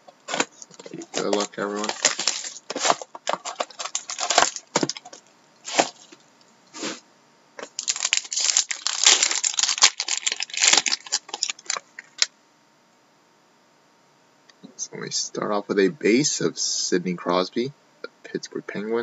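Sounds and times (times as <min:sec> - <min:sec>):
plastic wrapping tearing and crinkling: 0:00.1 - 0:06.2, 0:07.6 - 0:12.3.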